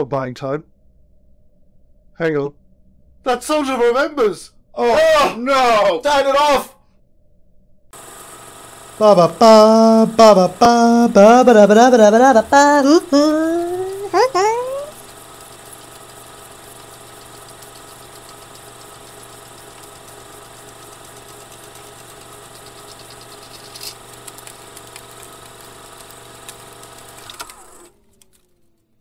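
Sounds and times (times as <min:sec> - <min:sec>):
film projector running: 0:08.0 - 0:29.0
motor winding down: 0:08.0 - 0:29.0.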